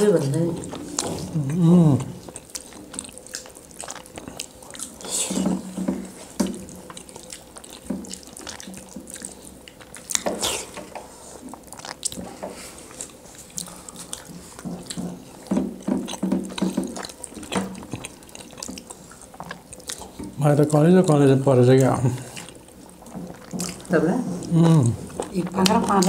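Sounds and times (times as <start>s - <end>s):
wet chewing and lip-smacking: 0.3s - 26.0s.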